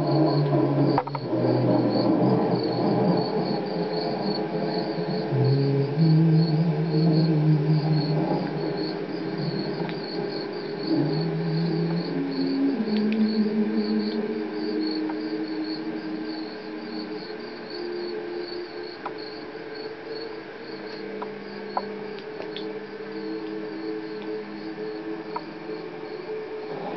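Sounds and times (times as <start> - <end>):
low drone notes: 0.0 - 19.7
crickets chirping: 0.0 - 26.9.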